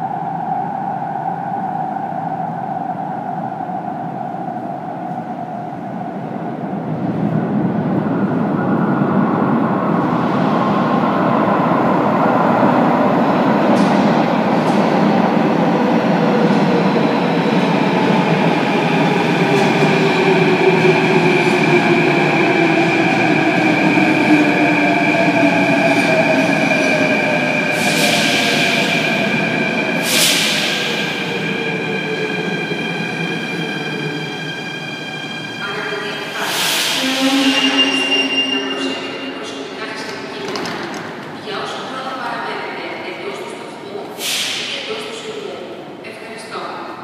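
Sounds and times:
train rumbling in tunnel: 0.0s - 47.0s
train whining tones: 16.2s - 41.4s.

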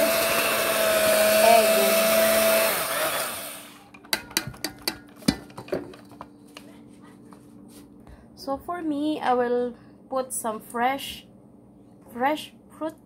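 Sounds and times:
electric hand mixer running: 0.0s - 3.9s
sharp clicks and knocks: 3.9s - 6.3s.

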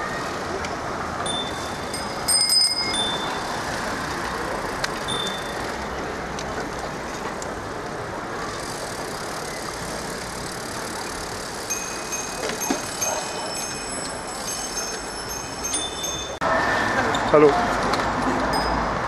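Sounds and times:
rush of moving bicycle: 0.0s - 19.0s
bicycle bells ringing: 0.4s - 6.0s, 8.5s - 16.4s, 18.5s - 19.0s.

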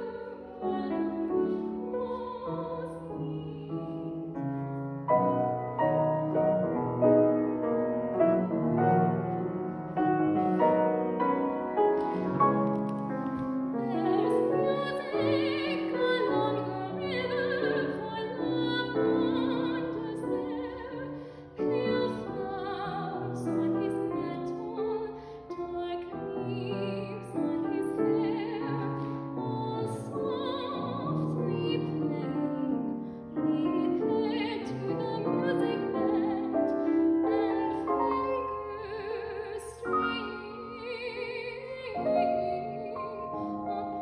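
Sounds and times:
woman singing with vibrato: 0.0s - 4.2s, 13.8s - 44.0s
piano accompaniment: 0.0s - 44.0s.

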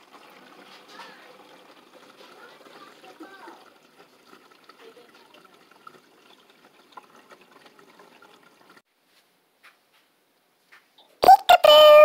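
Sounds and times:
water trickling and dripping: 0.0s - 8.9s.

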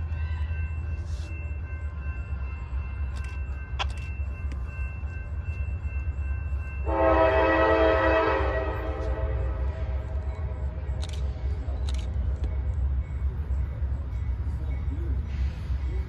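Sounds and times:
locomotive air horn: 6.9s - 9.7s.

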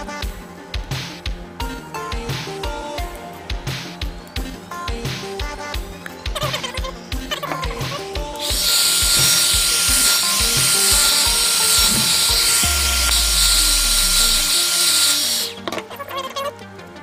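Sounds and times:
hot-air blower rushing and whining: 8.4s - 15.6s.

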